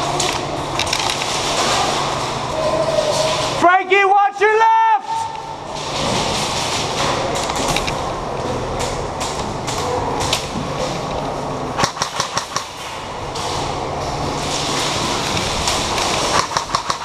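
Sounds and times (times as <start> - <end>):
steady hum: 5.0 - 17.0
airsoft gunshots: 11.8 - 12.8, 16.3 - 17.0.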